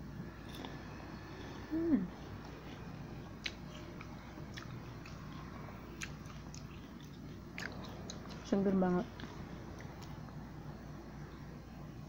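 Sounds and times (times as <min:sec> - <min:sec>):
low steady hum: 0:00.0 - 0:12.0
chewing crisp fruit crunches: 0:02.1 - 0:10.3.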